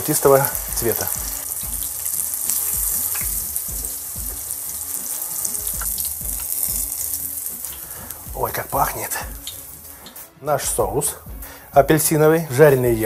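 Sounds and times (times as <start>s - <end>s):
oil sizzling while deep-frying: 0.0s - 10.3s
soft background music with beat: 0.0s - 13.0s.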